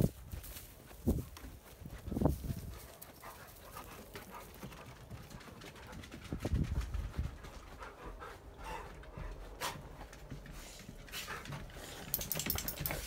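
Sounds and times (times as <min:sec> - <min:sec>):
dogs panting: 0:00.7 - 0:13.0.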